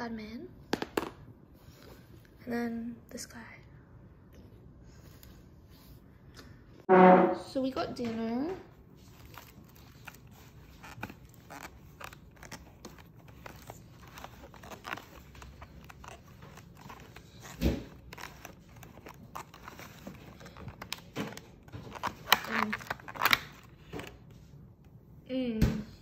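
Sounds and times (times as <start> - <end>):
louder bump: 6.9 - 7.6.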